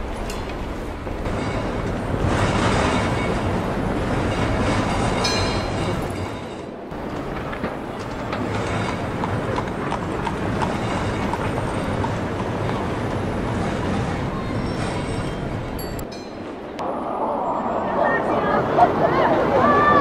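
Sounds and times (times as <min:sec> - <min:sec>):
rumbling traffic noise: 0:00.0 - 0:20.0
horse hooves clip-clopping: 0:06.9 - 0:14.2.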